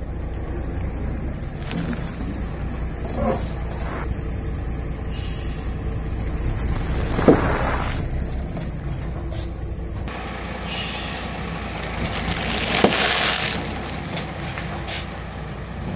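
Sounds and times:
truck engine running: 0.0s - 15.9s
tyre rolling over plastic bag: 6.4s - 8.6s.

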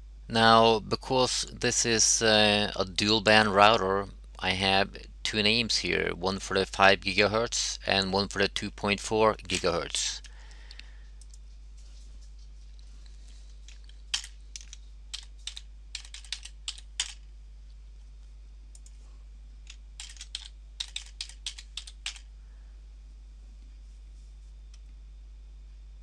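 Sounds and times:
steady low hum: 0.0s - 26.0s
keyboard typing: 13.7s - 17.2s, 19.7s - 22.3s.

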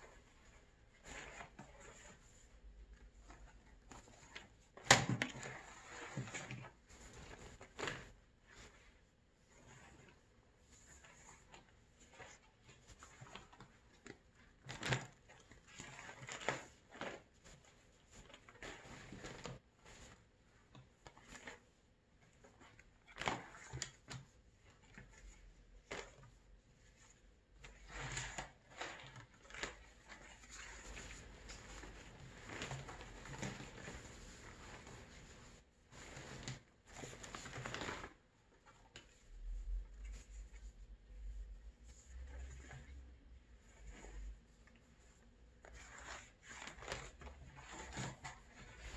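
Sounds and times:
leather pieces rustling and flapping: 24.9s - 38.2s.

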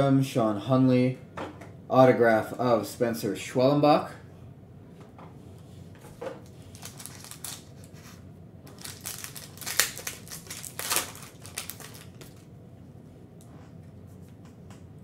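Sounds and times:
foil wrapper crinkling and tearing: 6.4s - 8.0s, 8.7s - 12.5s.

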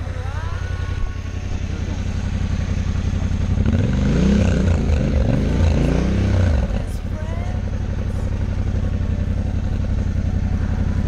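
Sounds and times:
motorcycle engine revving: 0.0s - 11.0s
motorcycle engines idling: 0.0s - 11.0s.

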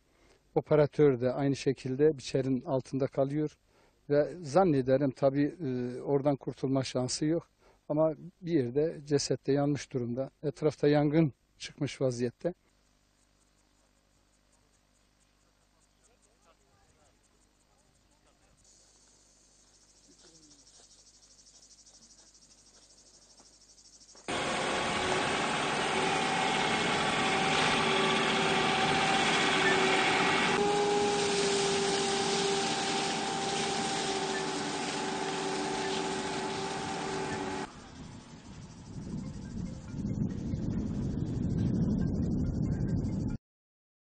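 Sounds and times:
faint insect buzzing: 12.4s - 39.9s
fire truck engine and pump: 24.3s - 38.7s.

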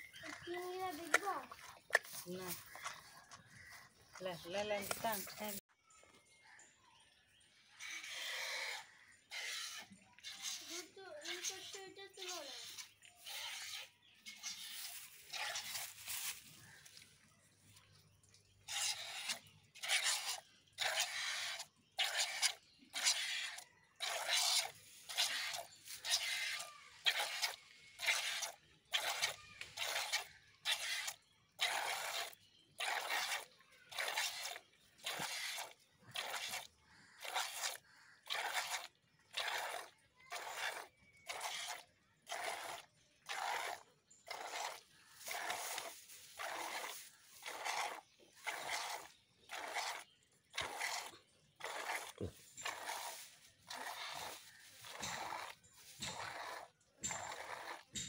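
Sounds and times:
milk squirting into plastic jug: 14.3s - 57.9s.

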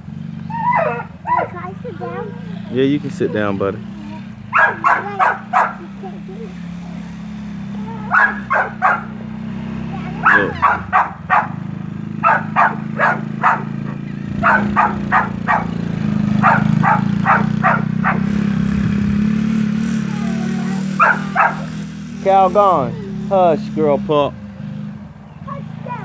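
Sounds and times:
small atv engine running: 0.0s - 26.0s
dog barking: 0.5s - 3.6s, 4.5s - 9.3s, 10.0s - 18.5s, 20.1s - 21.9s.

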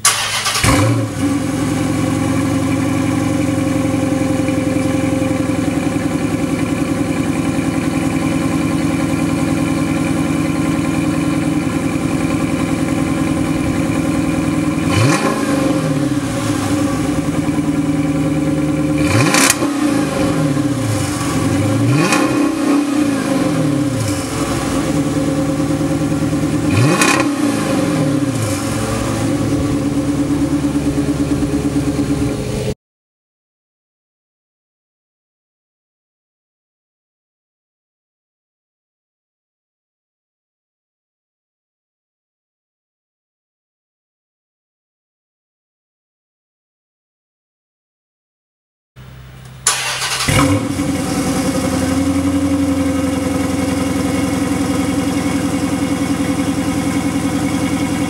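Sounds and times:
car engine idling and revving: 0.0s - 32.8s, 49.0s - 58.0s.

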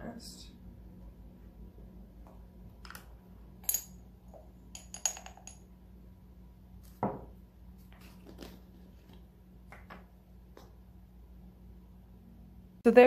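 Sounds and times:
metal spoon clinking on glass: 4.8s - 5.6s.

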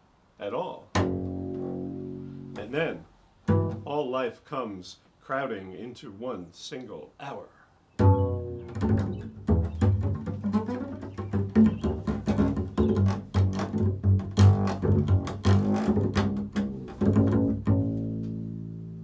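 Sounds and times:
plucked double bass: 0.9s - 3.9s, 8.0s - 19.0s.

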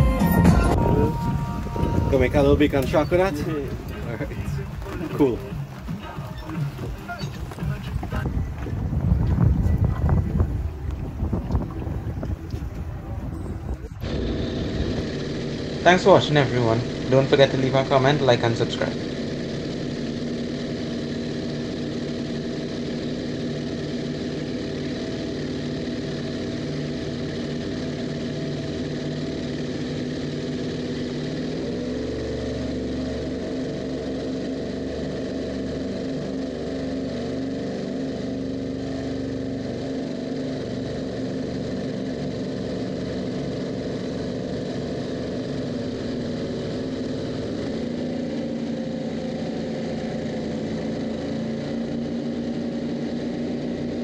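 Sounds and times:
boat engine running: 0.0s - 54.0s.

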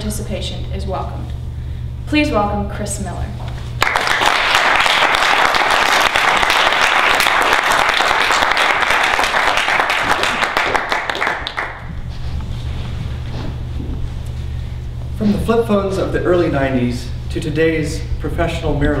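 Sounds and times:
audience clapping: 3.8s - 11.9s.

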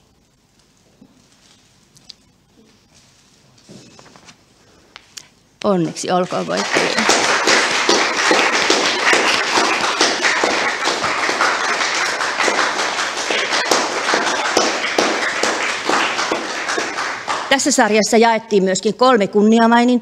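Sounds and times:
audience applauding: 6.2s - 18.0s.

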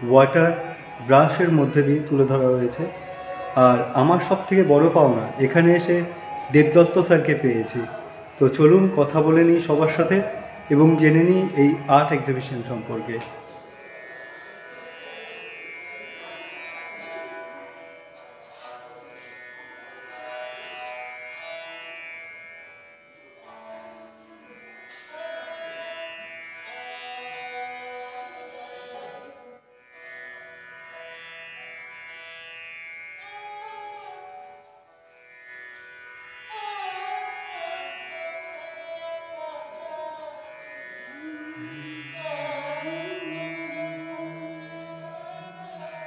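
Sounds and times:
indian classical string music: 0.0s - 46.0s.

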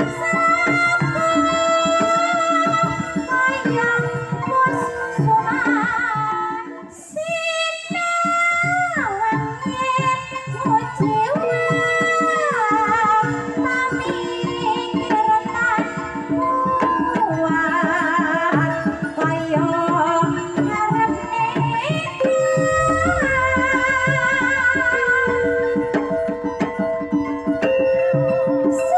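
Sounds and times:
woman singing with vibrato: 17.2s - 26.4s
rapid hand-drum strokes: 18.5s - 28.5s
gamelan ringing tones: 22.0s - 28.9s
deep low boom: 22.7s - 26.4s.

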